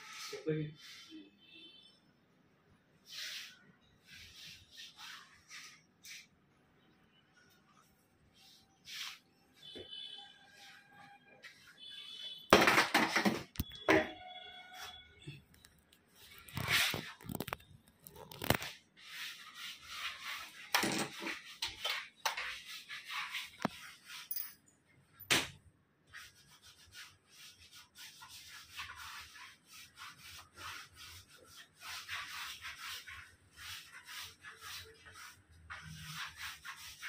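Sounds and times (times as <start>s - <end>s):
wallpaper rubbing and swishing: 0.0s - 1.3s, 3.0s - 12.4s, 16.0s - 24.3s, 26.1s - 37.0s
knocks or slaps: 25.3s - 25.6s.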